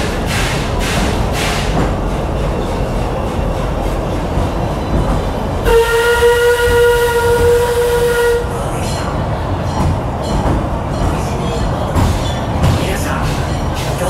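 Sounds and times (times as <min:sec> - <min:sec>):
train rumble: 0:00.0 - 0:14.0
steam locomotive whistle: 0:05.6 - 0:08.5.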